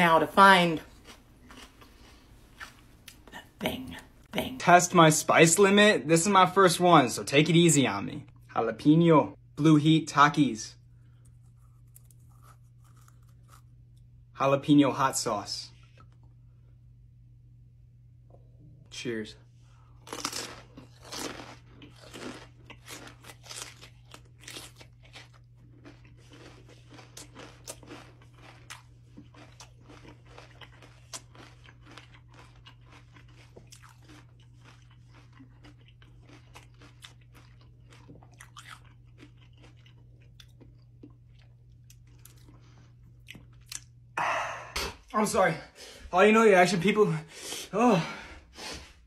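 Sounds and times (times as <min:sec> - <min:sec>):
crunchy chewing close up: 0:00.8 - 0:03.2, 0:11.0 - 0:14.1, 0:20.0 - 0:44.0.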